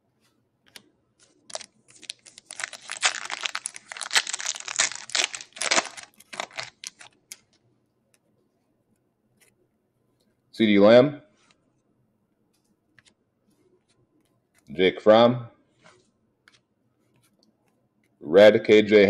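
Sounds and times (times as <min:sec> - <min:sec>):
foil wrapper tearing and crinkling: 0:01.4 - 0:07.5.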